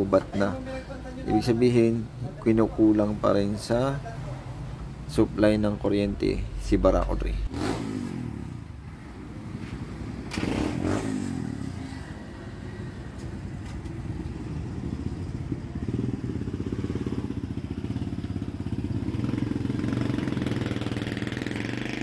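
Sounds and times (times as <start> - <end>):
motorcycle engine running: 13.4 - 22.0.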